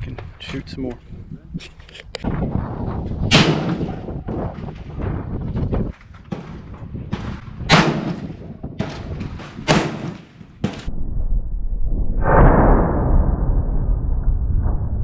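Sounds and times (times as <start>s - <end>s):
wind buffeting microphone: 0.0s - 11.2s
rifle shots: 3.3s - 4.9s, 6.3s - 10.9s.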